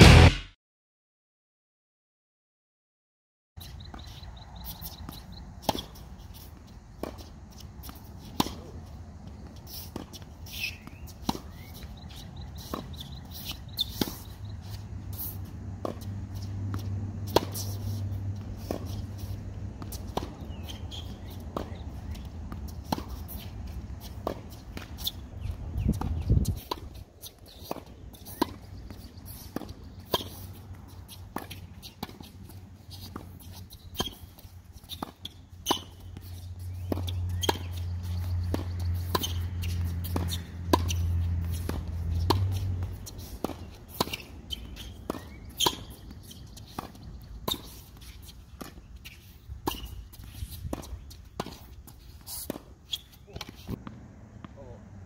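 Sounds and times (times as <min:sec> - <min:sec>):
tennis ball pops and bounces: 0:36.8 - 0:47.8.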